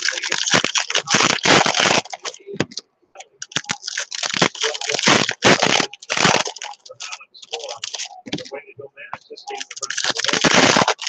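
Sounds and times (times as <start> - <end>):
foil wrapper crinkling and tearing: 0.0 - 2.4, 3.4 - 8.1, 9.6 - 11.0.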